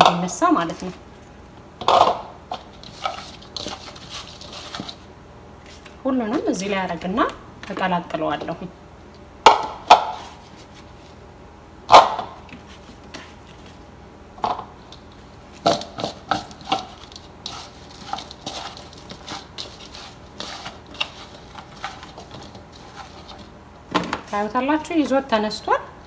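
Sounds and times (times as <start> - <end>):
potatoes clattering on metal pan: 1.8 - 5.0, 14.4 - 24.2.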